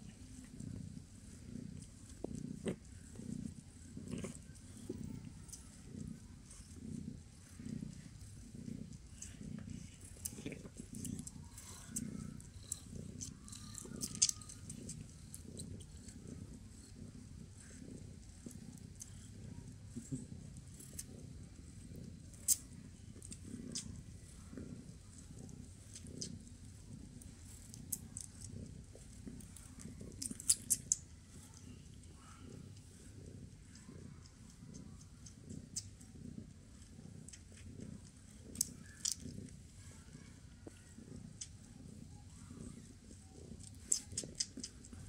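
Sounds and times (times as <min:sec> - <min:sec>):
cat purring: 0:00.0 - 0:45.0
kitten suckling clicks: 0:43.6 - 0:45.0.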